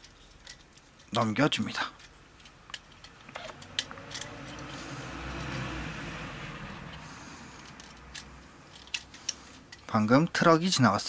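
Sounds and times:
plastic toy joints clicking: 0.0 - 5.6, 7.6 - 10.0
truck passing by: 3.2 - 9.4.

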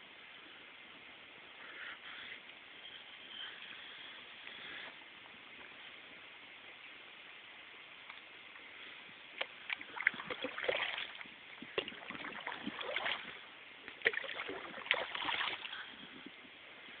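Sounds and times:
paddle splashing water: 9.4 - 15.9.

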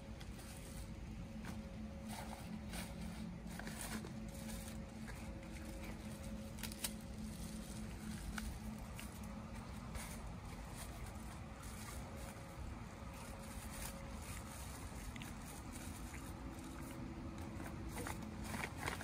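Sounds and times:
faint hum: 0.0 - 19.0
fruit bag crinkling: 0.0 - 19.0
low steady rumble: 0.0 - 19.0.

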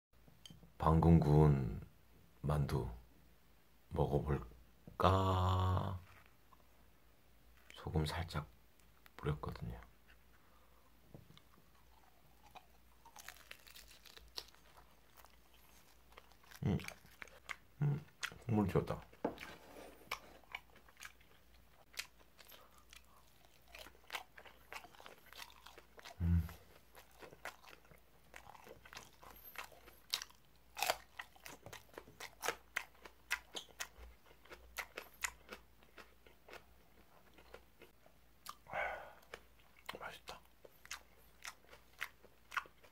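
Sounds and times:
chewing crunchy chili pepper: 11.3 - 42.9
short vocal sound: 26.2 - 26.6, 38.6 - 39.2.

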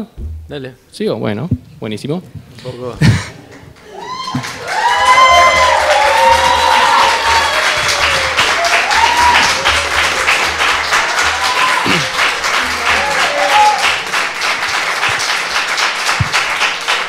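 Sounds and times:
crowd clapping in rhythm: 3.5 - 17.0.

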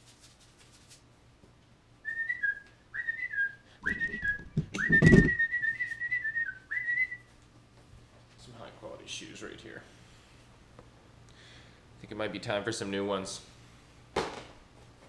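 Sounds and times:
man whistling a tune: 2.0 - 7.3.

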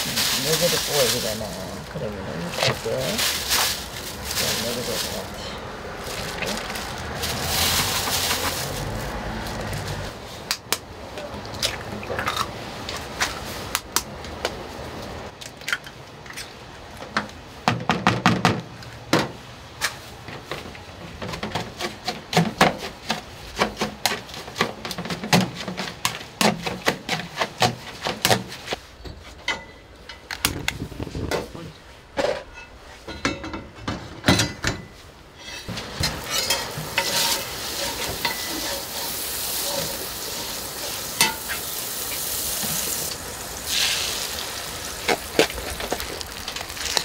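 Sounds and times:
plastic bag rustling: 0.0 - 10.2, 35.6 - 47.0
eggs cracking against a bowl: 44.9 - 47.0.

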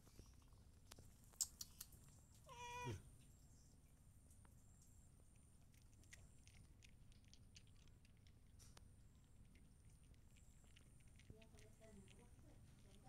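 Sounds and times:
cat crunching dry kibble: 5.3 - 13.0.

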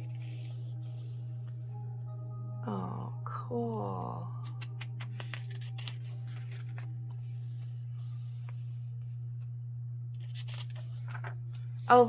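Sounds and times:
pages rustling and turning: 0.0 - 1.5, 4.4 - 9.5, 10.2 - 12.0
steady low hum: 0.0 - 12.0.

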